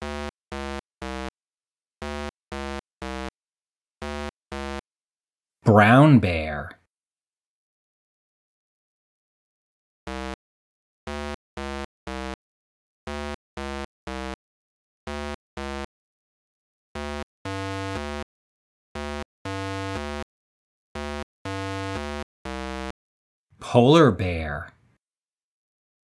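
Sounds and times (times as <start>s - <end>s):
synthesized electronic tune: 19.0s - 20.2s, 21.0s - 22.9s.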